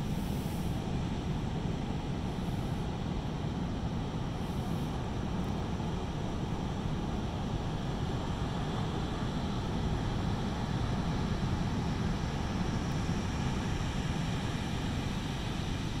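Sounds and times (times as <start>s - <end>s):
waves breaking on a beach: 0.0s - 16.0s.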